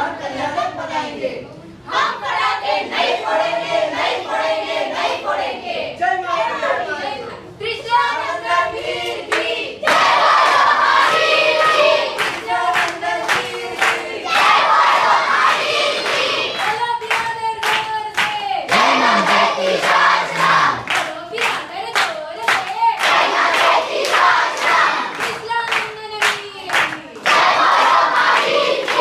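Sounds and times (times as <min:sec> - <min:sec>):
young voices singing in unison: 0:00.0 - 0:29.0
rhythmic hand clapping: 0:08.9 - 0:29.0.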